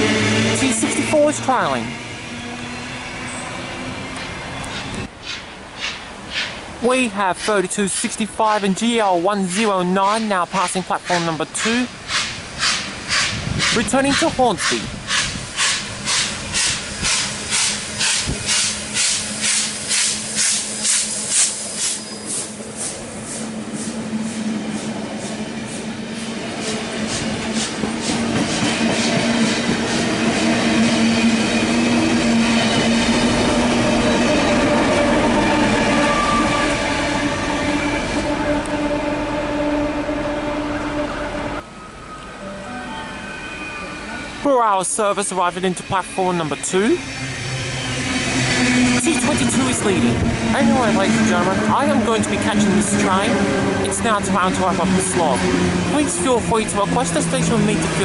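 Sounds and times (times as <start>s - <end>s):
train wheels clacking on rails: 4.2s - 6.6s, 11.0s - 34.8s
steam locomotive chuffing: 7.3s - 38.4s, 44.9s - 58.0s.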